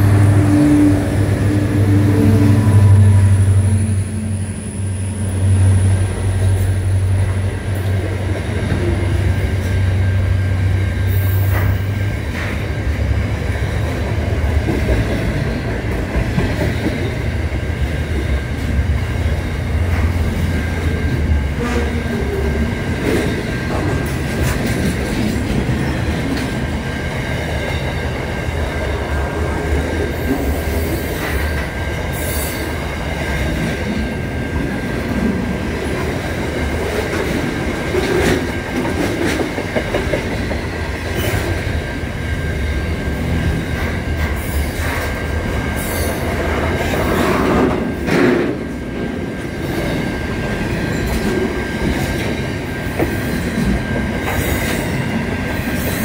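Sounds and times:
wheels squealing on rails: 0.0 - 13.1, 14.8 - 56.0
freight train rumbling past: 0.0 - 56.0.

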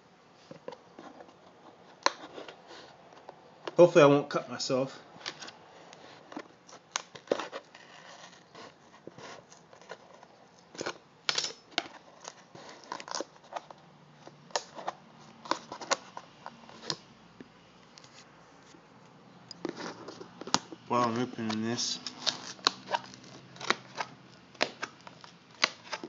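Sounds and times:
packaging crinkling and snapping: 11.8 - 13.8, 19.6 - 26.0
package being cut and torn open: 19.7 - 26.0.

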